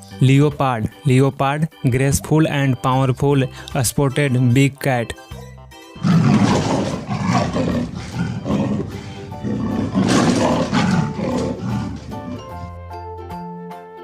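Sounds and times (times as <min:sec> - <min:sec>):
big cat roaring: 0:06.0 - 0:12.8.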